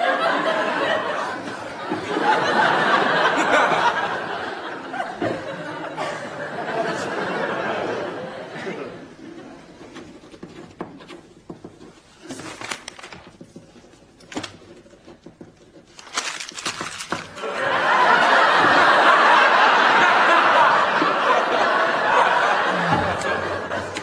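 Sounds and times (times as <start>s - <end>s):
studio audience laughing: 0.0s - 9.6s, 17.3s - 24.0s
small clicks and rustles: 10.1s - 17.3s.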